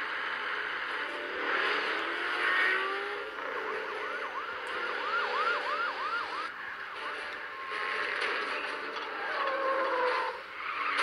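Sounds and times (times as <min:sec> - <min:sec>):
rushing vehicle noise: 0:00.0 - 0:11.0
police siren yelping: 0:03.2 - 0:06.5, 0:07.3 - 0:08.3.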